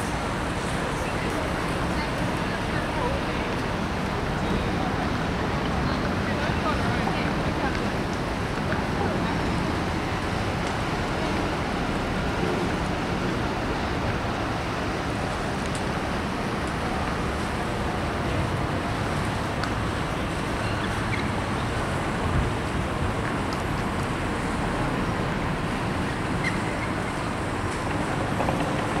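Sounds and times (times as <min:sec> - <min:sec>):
distant traffic hum: 0:00.0 - 0:29.0
low outdoor rumble: 0:00.0 - 0:29.0.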